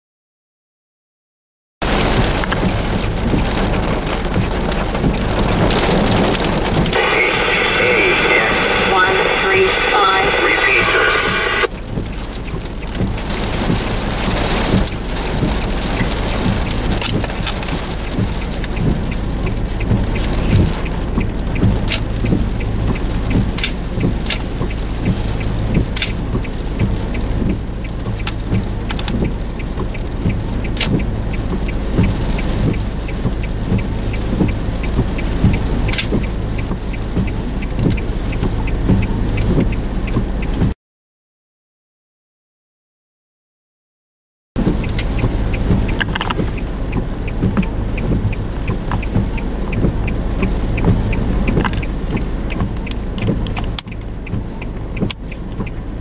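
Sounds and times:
rain hiss: 1.8s - 40.6s, 44.6s - 56.0s
low constant rumble: 1.8s - 40.7s, 44.6s - 56.0s
raindrops tapping: 1.8s - 40.7s, 44.6s - 56.0s.

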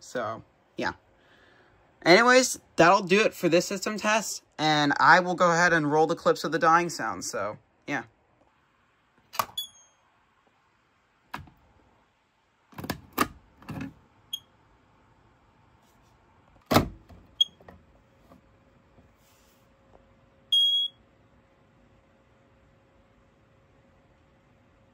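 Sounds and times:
alarm chirps: 20.5s - 21.0s.

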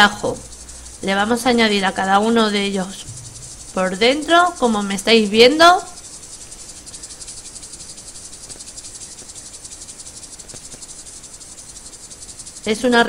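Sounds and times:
faint ticks: 0.0s - 13.0s
insect chirring: 0.0s - 13.0s.

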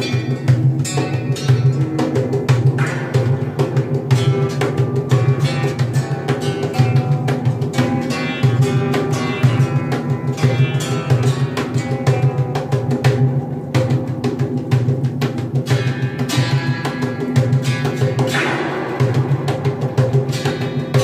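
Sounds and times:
ringing plucked string notes: 0.0s - 21.0s.

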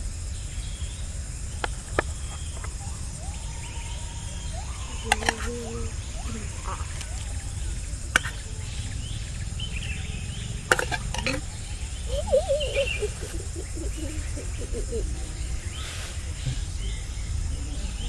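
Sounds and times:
faint bird chirps: 0.0s - 18.0s
steady low rumble: 0.0s - 18.0s
plates clicking on a table: 5.0s - 5.5s, 8.2s - 8.4s, 10.7s - 11.4s.

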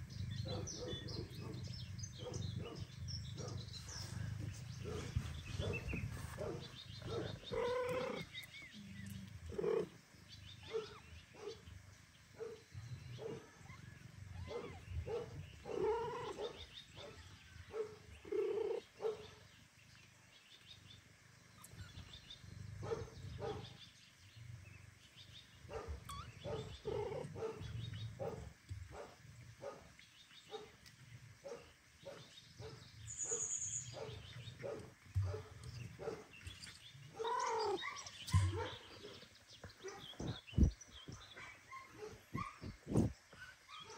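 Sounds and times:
cats meowing: 7.3s - 8.4s, 37.2s - 38.6s.

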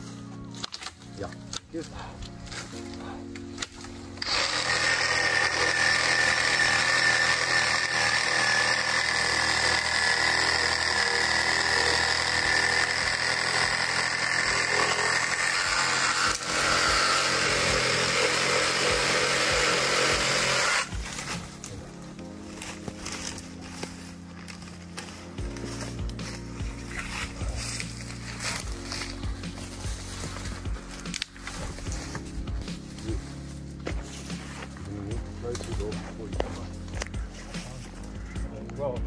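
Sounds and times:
chainsaw cutting branch: 3.6s - 21.8s, 22.6s - 32.3s.

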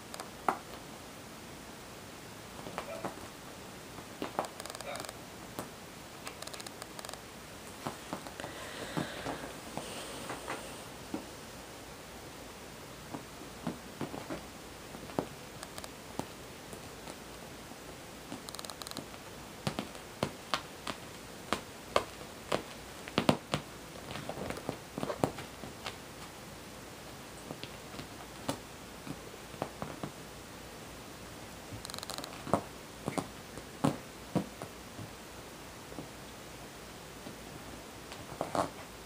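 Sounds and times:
kitten paws thumping and tapping: 2.6s - 3.4s, 4.0s - 11.3s, 13.0s - 17.4s, 18.3s - 26.4s, 27.4s - 30.2s, 31.7s - 35.2s, 38.1s - 38.9s.

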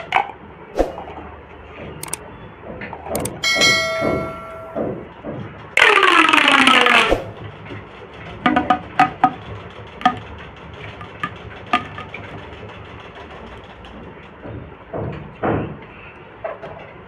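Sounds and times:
plastic pop tube popping: 11.2s - 12.1s.

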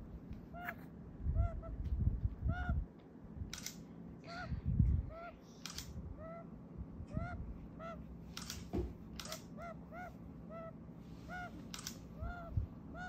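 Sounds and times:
sharp clicks: 3.5s - 3.8s, 5.6s - 6.0s, 8.3s - 9.5s, 11.6s - 12.1s
bushbaby chattering chirps: 4.3s - 6.5s, 7.1s - 8.1s, 9.2s - 13.0s.

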